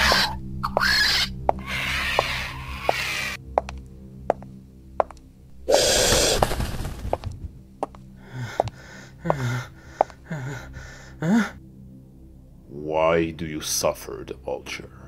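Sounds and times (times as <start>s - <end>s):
low steady drone: 0.0s - 15.0s
man gasping and breathing: 8.2s - 11.6s.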